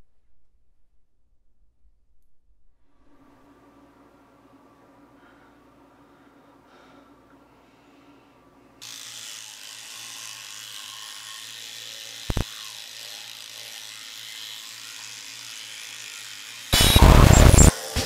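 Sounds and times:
electric toothbrush buzzing: 8.8s - 18.0s
loud burst of noise: 16.7s - 18.0s.

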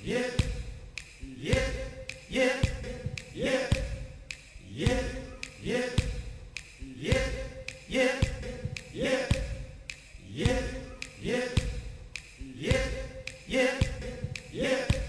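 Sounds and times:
man singing looped yep: 0.0s - 15.0s.

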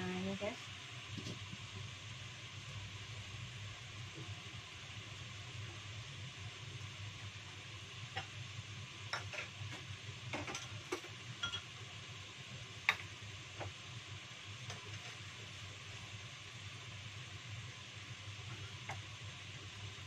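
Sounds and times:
boiling water steam hiss: 0.0s - 20.0s.

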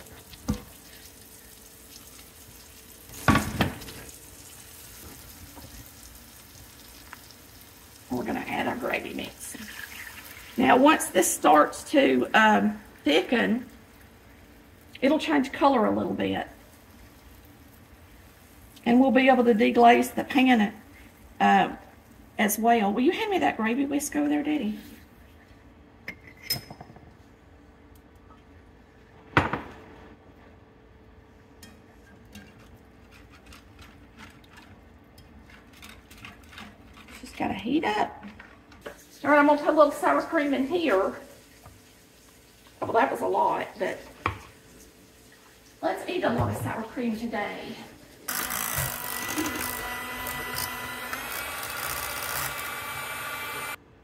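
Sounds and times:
whisk scraping a skillet: 32.0s - 39.2s
electric hand mixer running: 48.3s - 53.8s.

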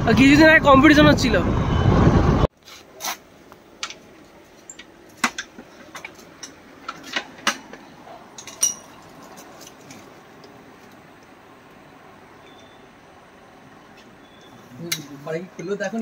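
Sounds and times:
small metal parts clinking: 3.8s - 10.1s.

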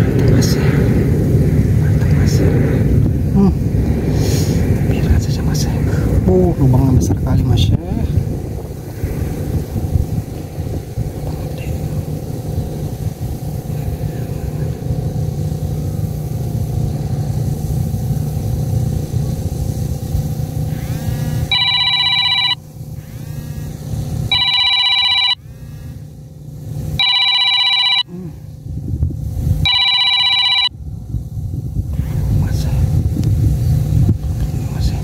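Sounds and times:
low rumbling noise: 0.0s - 35.0s
electronic phone ringtone: 21.5s - 22.6s, 24.3s - 25.4s, 27.0s - 28.2s, 29.6s - 30.7s.

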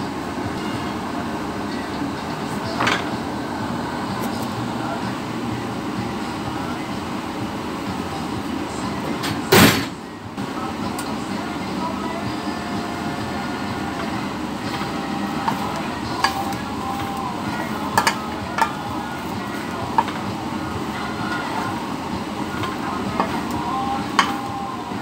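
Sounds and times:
steady background rush: 0.0s - 25.0s
spatula scraping steel skillet: 13.9s - 25.0s.

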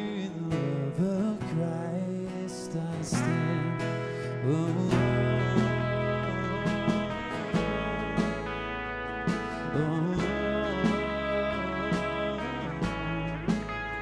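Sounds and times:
person singing: 0.0s - 8.6s, 9.4s - 14.0s
acoustic guitar: 0.0s - 14.0s
band playing worship song: 0.0s - 14.0s
deep bass note: 4.8s - 14.0s.

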